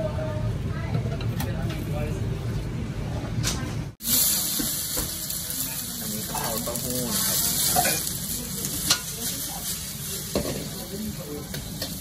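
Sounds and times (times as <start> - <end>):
vegetables sizzling in a wok: 4.0 - 12.0
ladle clanking against wok: 7.6 - 9.4.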